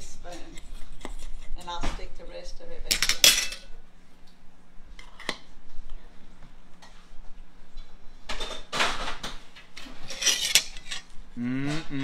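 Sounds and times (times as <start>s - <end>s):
metal spoon scraping metal tin: 10.0s - 11.1s.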